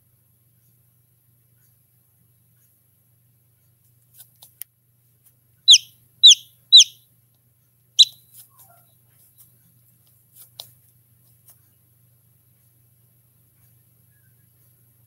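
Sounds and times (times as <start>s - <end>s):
chick peeping: 5.7s - 7.0s, 8.0s - 8.9s.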